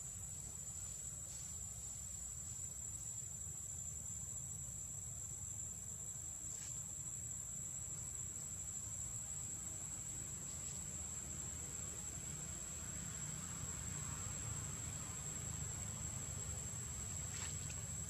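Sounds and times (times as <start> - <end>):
faint rustle: 0.3 - 3.1, 16.9 - 18.0.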